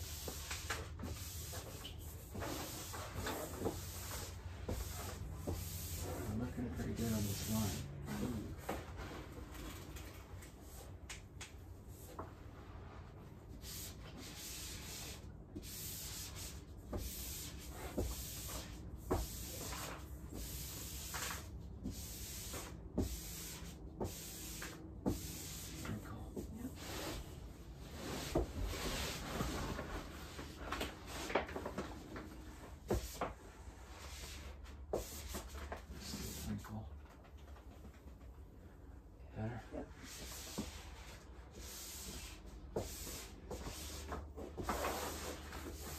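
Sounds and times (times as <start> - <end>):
wallpaper rustling and rubbing: 0.0 - 11.0, 11.7 - 38.4, 39.9 - 45.9.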